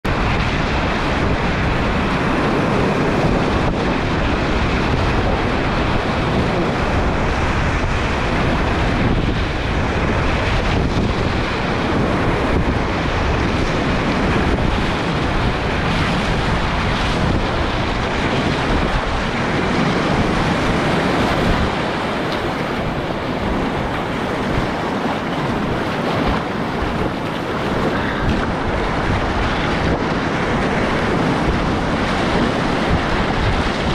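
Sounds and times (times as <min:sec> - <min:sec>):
kayak paddling: 0:00.0 - 0:33.9
rapids rushing: 0:00.0 - 0:33.9
water splashing over kayak: 0:00.0 - 0:33.9.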